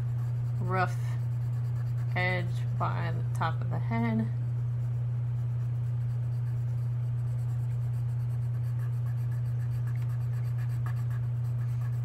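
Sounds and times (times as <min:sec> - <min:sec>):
pencil scratching on paper: 0:00.0 - 0:12.0
steady low hum: 0:00.0 - 0:12.0.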